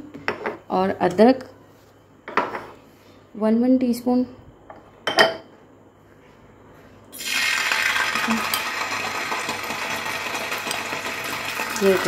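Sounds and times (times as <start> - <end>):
oil sizzling in a frying pan: 7.1 - 12.0.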